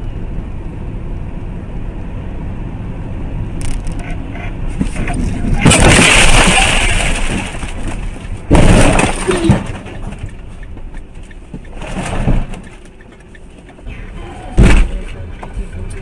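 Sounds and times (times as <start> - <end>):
vehicle crash: 4.7 - 10.6, 11.6 - 13.0, 13.8 - 15.2.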